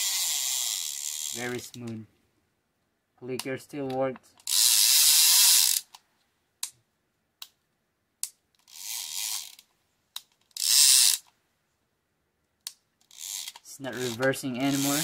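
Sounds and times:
fishing reel ratchet clicking: 0.0 - 1.6, 4.4 - 6.0, 8.6 - 9.6, 10.5 - 11.3, 13.0 - 15.0.

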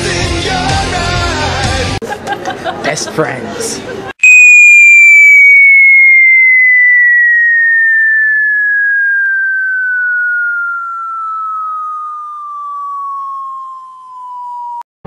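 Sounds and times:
falling whistle tone: 4.2 - 14.9.

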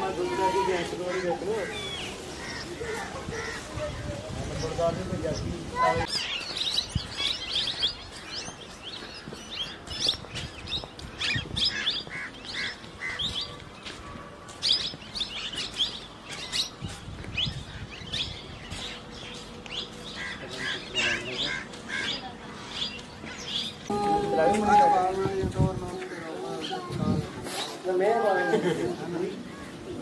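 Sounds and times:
small birds chirping: 0.5 - 24.0.

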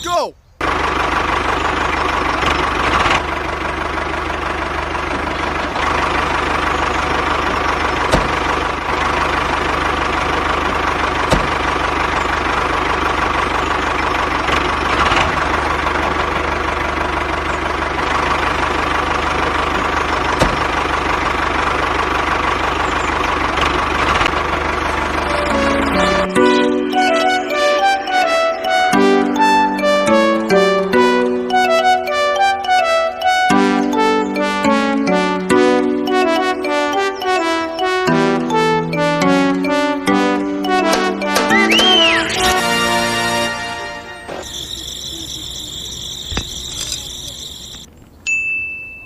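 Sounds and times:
sharp clicks: 46.3 - 47.9.

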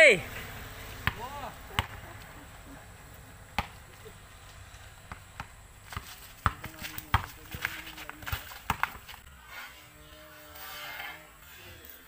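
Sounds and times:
basketball bouncing on concrete: 1.0 - 2.0, 3.5 - 4.0, 5.0 - 9.2.

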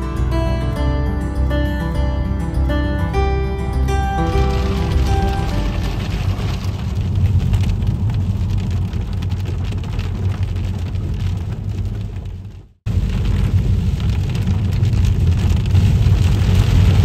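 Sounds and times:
low road rumble: 0.0 - 17.0
rain pattering on car: 4.2 - 17.0.

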